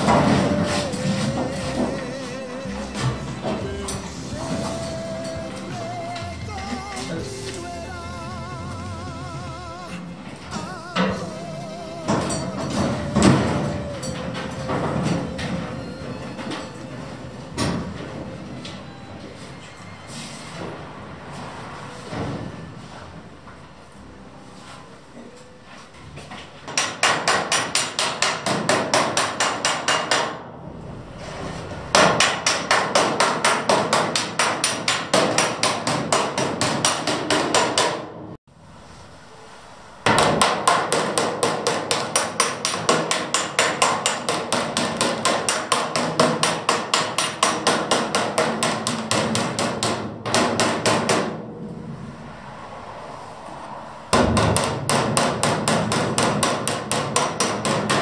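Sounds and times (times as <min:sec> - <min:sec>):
hammer striking metal panel: 0:00.0 - 0:02.2, 0:12.0 - 0:16.8, 0:26.7 - 0:30.5, 0:31.9 - 0:38.3, 0:40.1 - 0:51.5, 0:54.1 - 0:58.0.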